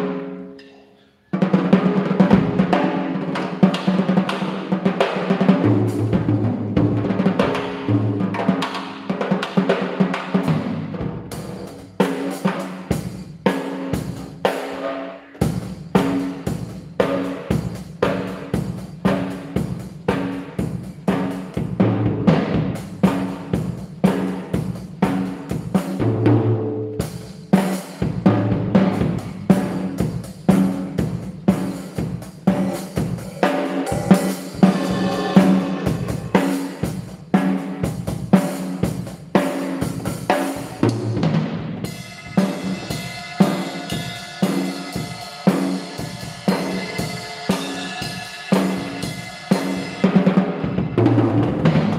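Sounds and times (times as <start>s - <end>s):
drum kit steady beat: 1.4s - 51.9s
cymbal ringing: 32.6s - 37.3s, 41.9s - 50.1s
low tom hits: 33.0s - 37.2s.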